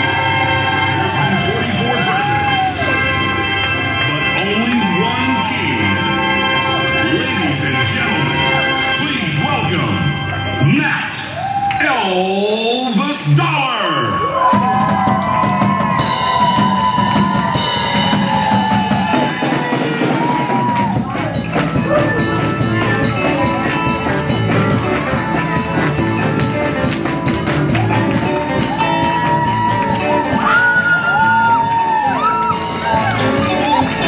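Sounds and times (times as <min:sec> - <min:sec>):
live band playing: 0:00.0 - 0:34.0
drums steady beat: 0:14.2 - 0:34.0.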